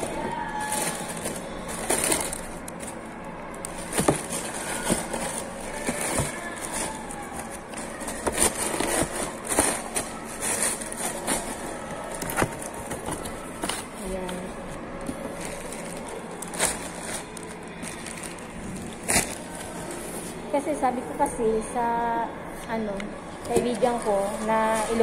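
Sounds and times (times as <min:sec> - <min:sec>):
tissue paper rustling: 0:00.0 - 0:03.1, 0:03.7 - 0:20.4.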